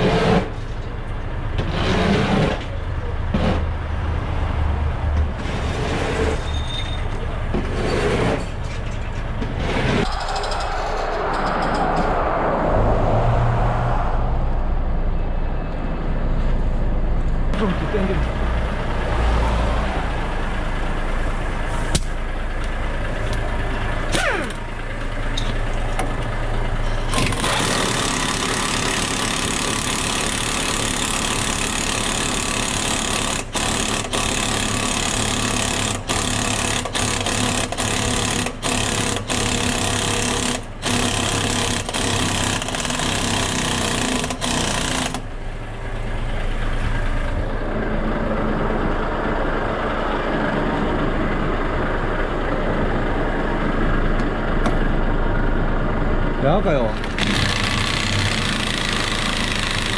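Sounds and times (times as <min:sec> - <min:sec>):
large truck engine running: 0:00.0 - 0:59.9
loud rushing noise: 0:09.6 - 0:17.0.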